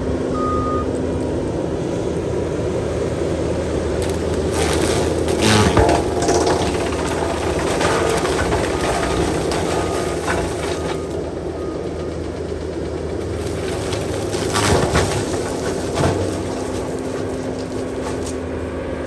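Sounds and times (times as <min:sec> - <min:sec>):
diesel engine under load: 0:00.0 - 0:19.0
wood cracking: 0:04.0 - 0:11.2, 0:13.3 - 0:18.4
mulcher grinding brush: 0:04.0 - 0:11.3, 0:13.2 - 0:19.0.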